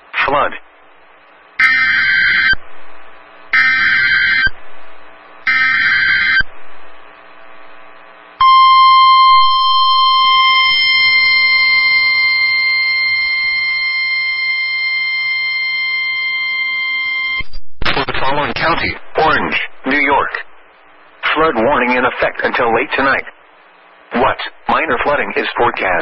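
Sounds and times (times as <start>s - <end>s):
buzzing digital data bursts: 1.6s - 2.6s, 3.5s - 4.6s, 5.4s - 6.5s
steady alarm tone: 1.6s - 7.0s, 7.6s - 17.4s.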